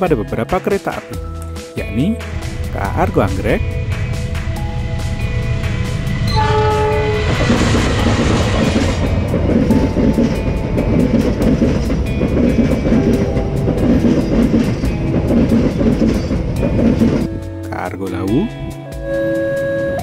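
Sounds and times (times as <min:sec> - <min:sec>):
background music with steady beat: 0:00.0 - 0:20.0
passenger train passing: 0:01.8 - 0:20.0
wheels clattering over rails: 0:07.3 - 0:17.4.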